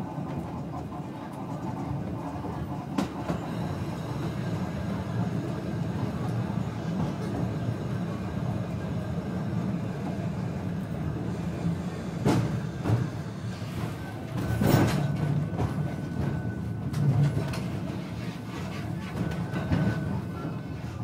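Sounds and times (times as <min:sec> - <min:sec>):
tram rumbling along track: 0:00.0 - 0:21.0.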